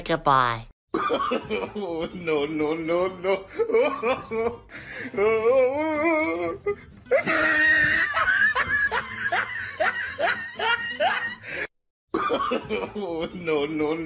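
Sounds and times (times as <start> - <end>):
man laughing in whoops: 7.1 - 11.6.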